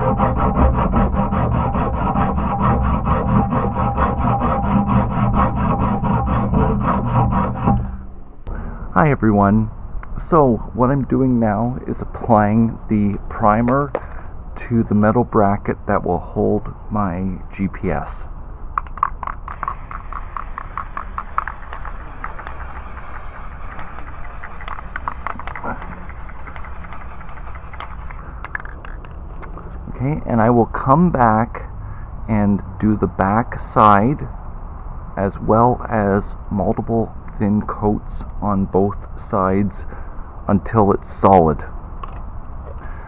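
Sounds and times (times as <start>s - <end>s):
hacksaw cutting metal: 0.0s - 8.1s, 19.6s - 28.2s
spray can ball rattling: 18.8s - 29.1s.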